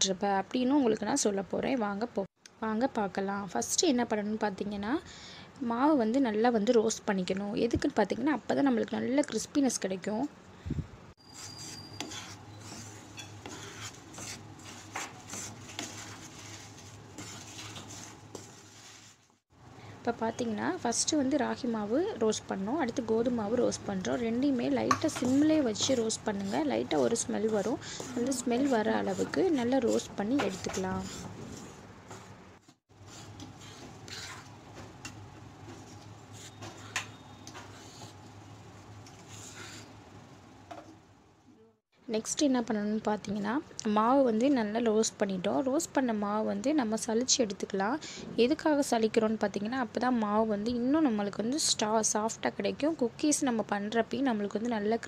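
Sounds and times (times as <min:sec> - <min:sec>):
wooden spatula scraping flour: 0:11.2 - 0:19.4, 0:23.7 - 0:38.3, 0:39.1 - 0:40.0.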